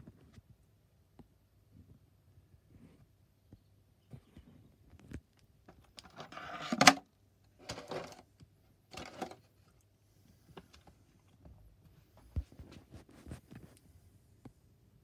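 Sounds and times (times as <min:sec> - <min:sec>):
plastic shell rustling and scraping: 0:05.7 - 0:08.3, 0:08.9 - 0:09.6.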